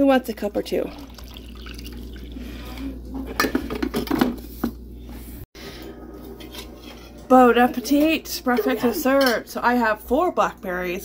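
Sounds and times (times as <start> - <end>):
coffee pouring into a mug: 0.9 - 3.0.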